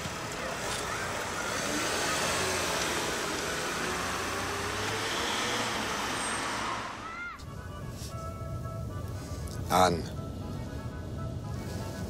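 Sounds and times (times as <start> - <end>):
minivan engine running: 0.0 - 12.0.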